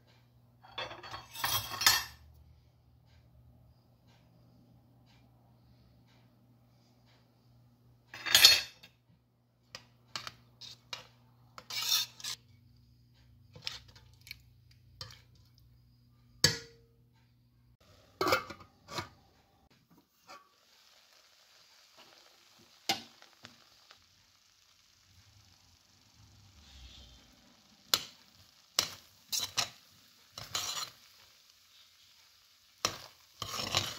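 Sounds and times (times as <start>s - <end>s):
metal spoon scraping steel pot: 0.6s - 2.2s, 10.2s - 12.5s, 13.5s - 14.1s, 28.8s - 31.1s, 32.8s - 33.9s
soft hiss: 19.3s - 33.9s.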